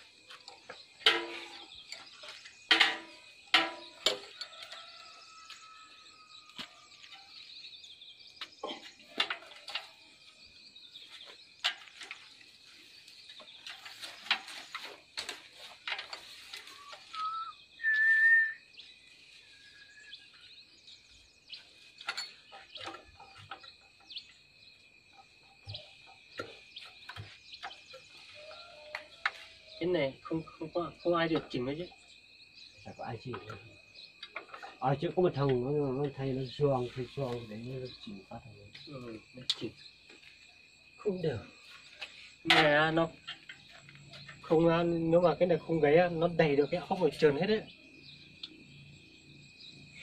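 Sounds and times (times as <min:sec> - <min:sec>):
birds chirping: 0:00.0 - 0:50.0.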